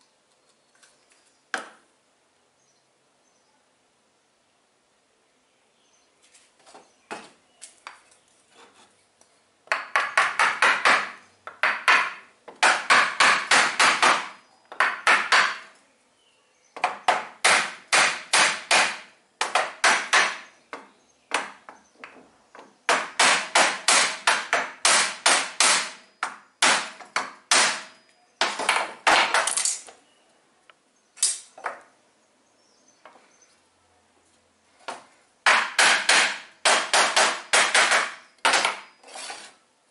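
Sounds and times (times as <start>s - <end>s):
hammer tapping steel rods: 9.7s - 15.7s, 16.8s - 29.6s, 34.9s - 38.8s.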